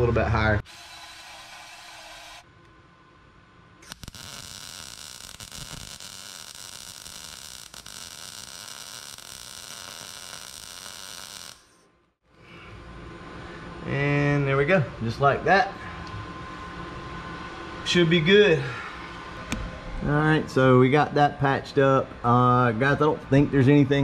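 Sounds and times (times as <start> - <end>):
welder arc crackling and hissing: 0.6 - 2.5, 3.8 - 11.8.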